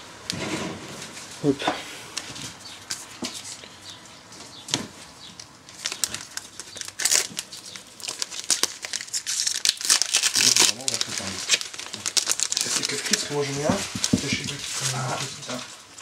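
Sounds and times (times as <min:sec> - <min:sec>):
foil wrappers crinkling: 0:05.2 - 0:16.0.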